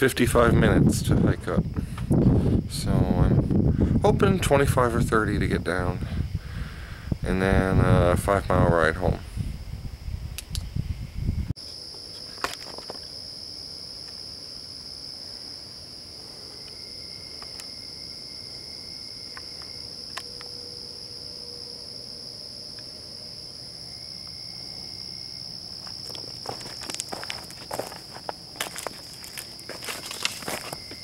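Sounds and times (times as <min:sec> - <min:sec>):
crickets chirping: 0:00.0 - 0:31.0
footsteps on rocky trail: 0:25.8 - 0:31.0.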